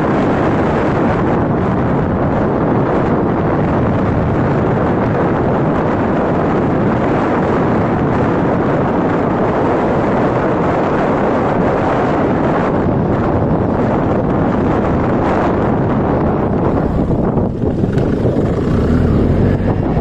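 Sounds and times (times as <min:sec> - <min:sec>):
wind buffeting microphone: 0:00.0 - 0:20.0
motorcycle engine running: 0:12.7 - 0:20.0.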